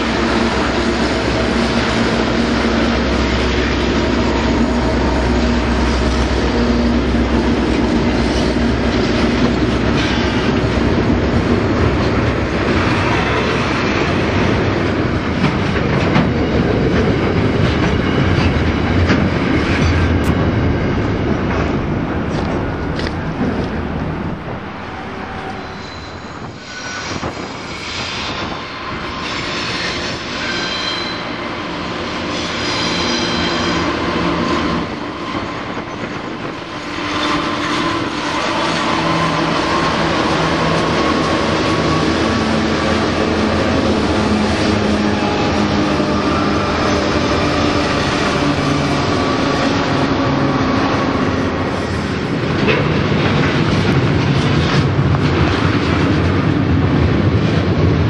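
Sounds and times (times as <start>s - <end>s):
diesel locomotive engines: 0.0s - 58.0s
wheel squeals: 24.9s - 31.4s.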